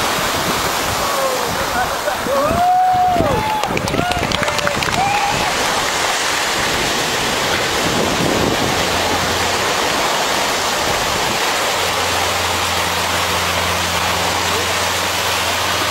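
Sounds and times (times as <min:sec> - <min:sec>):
surf washing on beach: 0:00.0 - 0:15.9
low steady hum: 0:03.5 - 0:15.9.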